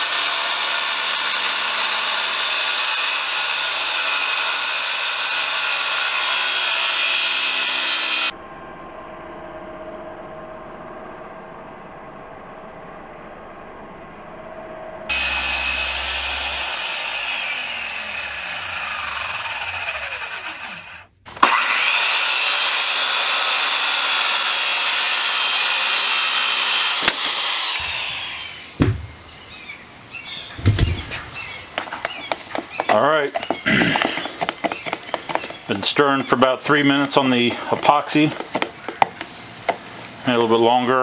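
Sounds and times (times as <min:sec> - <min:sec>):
circular saw cutting plywood: 0:00.0 - 0:08.3, 0:15.1 - 0:29.3, 0:30.5 - 0:41.0
thumps: 0:27.0 - 0:29.2, 0:30.5 - 0:36.4.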